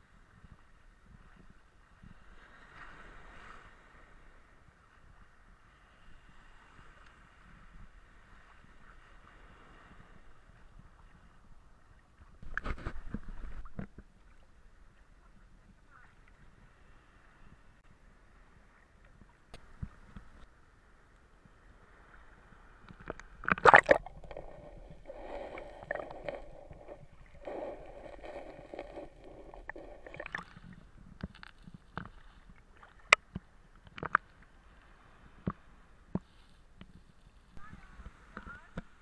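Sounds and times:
sea water splashing: 22.0 - 35.3
muffled gurgling: 22.9 - 33.3.

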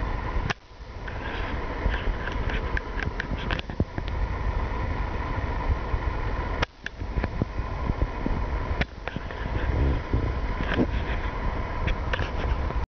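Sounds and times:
electric dirt bike motor whine: 0.0 - 12.8
low rumble: 0.0 - 12.9.

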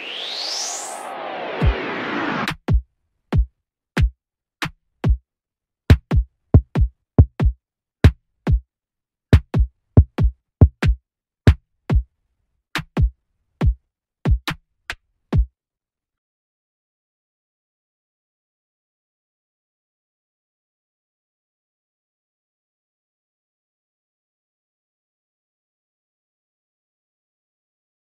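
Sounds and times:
synth swell: 0.0 - 2.5
drum machine bass drum: 3.4 - 4.2, 5.9 - 8.6, 9.4 - 12.0, 12.8 - 14.6.

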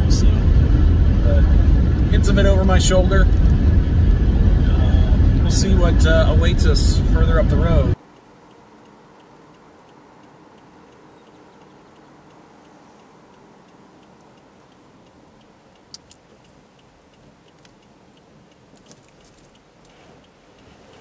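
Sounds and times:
faint low cabin hum: 0.0 - 15.9
sharp clicks: 8.0 - 21.0
turn-signal indicator ticking: 8.0 - 21.0.

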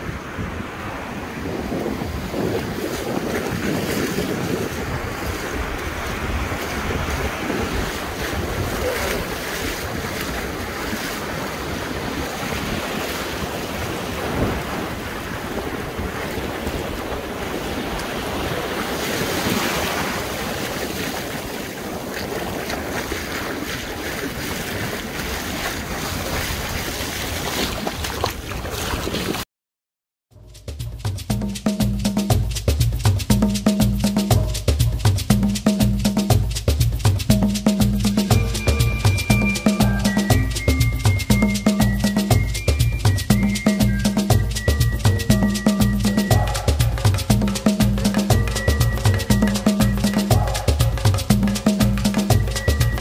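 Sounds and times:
ocean surf breaking: 0.0 - 29.4
wind buffeting microphone: 0.0 - 29.4.

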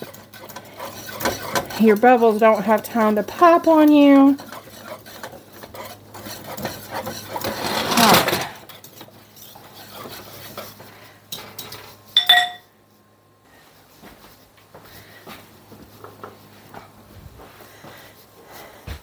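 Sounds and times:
whisk scraping metal saucepan: 0.0 - 12.5
ringing metal clink: 12.2 - 12.7.

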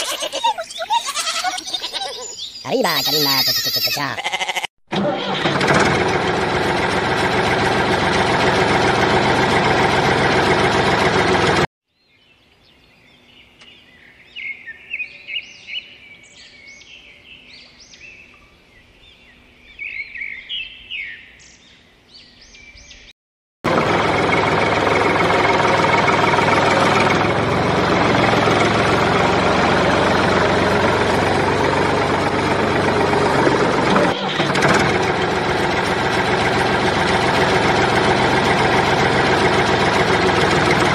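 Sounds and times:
birds chirping: 0.0 - 4.2
engine running: 4.9 - 11.7, 23.6 - 40.9.

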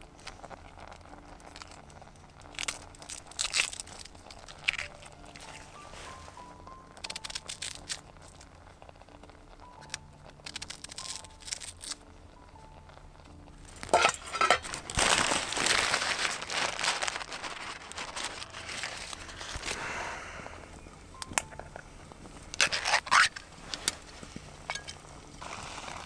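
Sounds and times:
plastic bag crinkling: 0.0 - 8.4, 9.8 - 12.1, 13.6 - 20.0, 22.4 - 26.0
pot lid clinking: 13.8 - 14.9, 24.6 - 25.1.

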